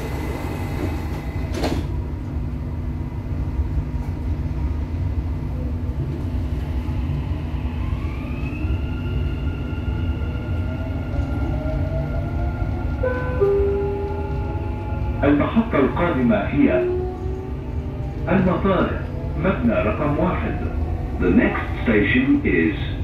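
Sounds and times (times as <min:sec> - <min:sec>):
train doors shutting knock: 0:00.0 - 0:02.0
train rumble and hum: 0:00.0 - 0:23.0.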